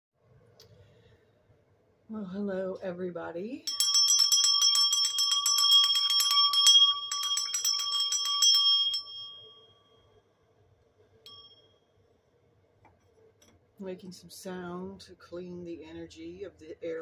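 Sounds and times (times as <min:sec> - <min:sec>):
hand bell ringing: 0:03.7 - 0:09.8, 0:11.3 - 0:11.7.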